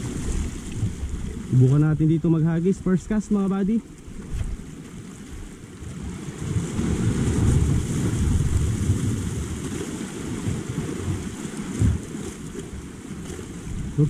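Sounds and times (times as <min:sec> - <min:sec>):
small waves washing over rocks: 0:00.0 - 0:14.0
wind rumbling on microphone: 0:00.0 - 0:14.0.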